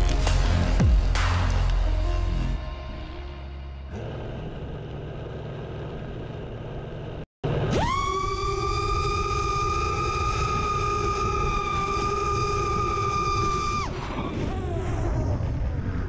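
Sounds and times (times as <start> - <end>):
drone motors whining: 3.9 - 16.0.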